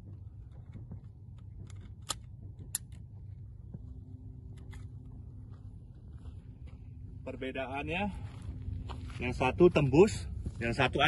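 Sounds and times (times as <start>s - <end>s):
faint hum: 0.0s - 11.0s
low rumble: 0.0s - 11.0s
handgun metallic clicks: 1.3s - 3.1s.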